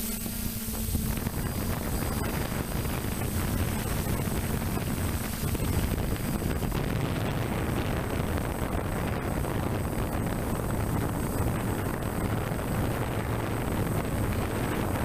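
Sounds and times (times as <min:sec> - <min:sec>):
drone propeller and motor rush: 0:00.0 - 0:15.0
faint high whines: 0:00.0 - 0:15.0
wind buffeting on microphone: 0:00.2 - 0:15.0.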